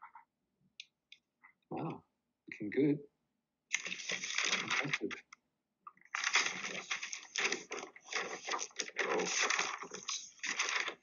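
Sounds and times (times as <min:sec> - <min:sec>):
paper rustling and crackling: 0:03.7 - 0:05.2, 0:06.0 - 0:11.0.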